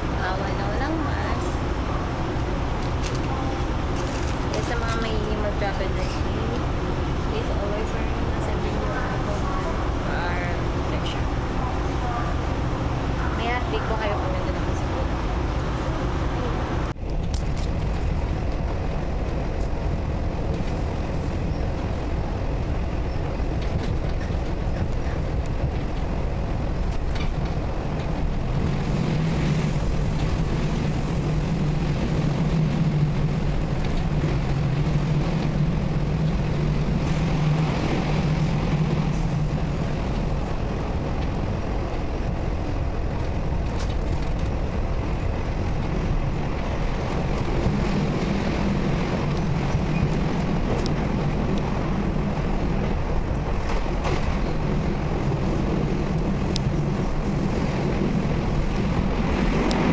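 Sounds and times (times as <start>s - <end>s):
train wheels rumbling: 0.0s - 59.9s.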